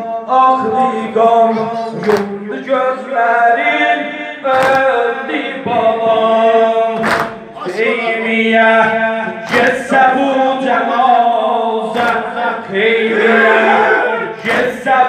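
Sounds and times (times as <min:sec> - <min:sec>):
man singing lament into microphone: 0:00.0 - 0:15.0
men chanting: 0:00.0 - 0:15.0
chest slaps: 0:07.0 - 0:07.4.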